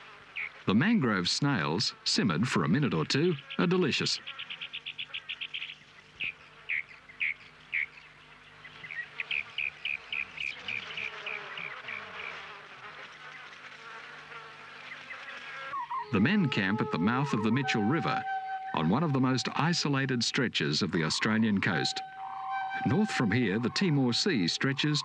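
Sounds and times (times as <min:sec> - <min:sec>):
insects chirping: 0:08.8 - 0:12.4.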